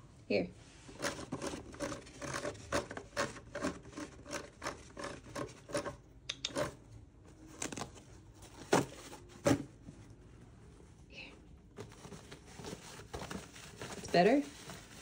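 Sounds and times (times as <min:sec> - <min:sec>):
paper towel tearing and rustling: 0:11.8 - 0:15.0.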